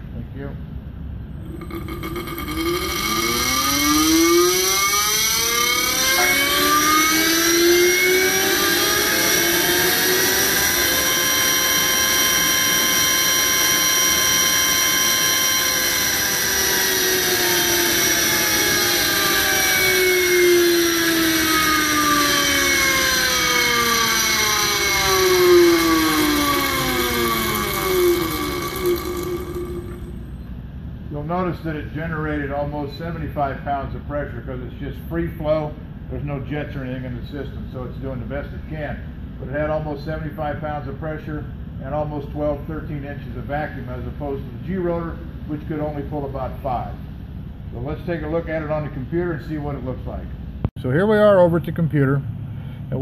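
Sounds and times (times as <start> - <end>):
oil pump mechanical whine: 1.1 - 30.8.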